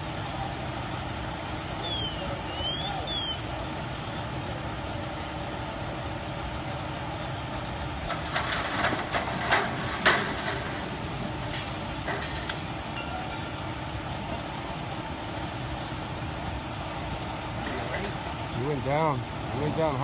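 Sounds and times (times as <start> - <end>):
ladder crashing to ground: 8.1 - 11.0.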